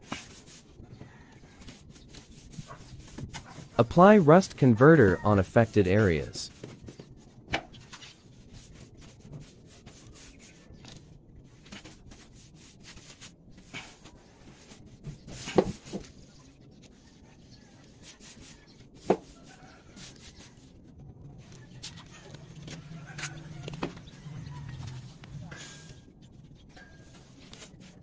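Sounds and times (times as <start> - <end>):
brush scrubbing metal sheet: 1.6 - 3.8, 8.1 - 11.0.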